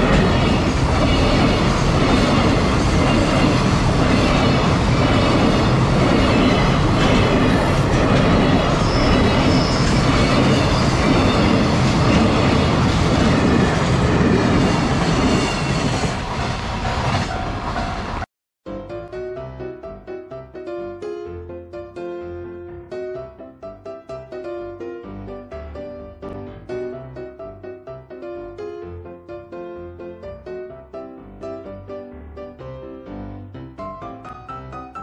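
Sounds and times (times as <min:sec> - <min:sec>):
clickety-clack over rail joints: 0:00.0 - 0:18.3
train wheel rumble: 0:00.0 - 0:18.3
wheel squeal: 0:08.7 - 0:11.8.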